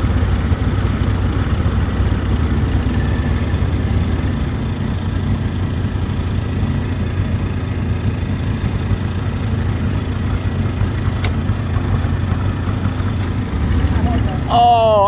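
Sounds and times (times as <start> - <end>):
small engine running: 0.0 - 15.0.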